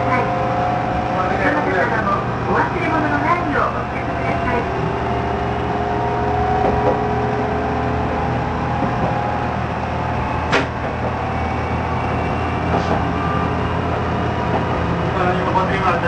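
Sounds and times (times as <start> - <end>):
railcar engine drone: 0.0 - 16.0.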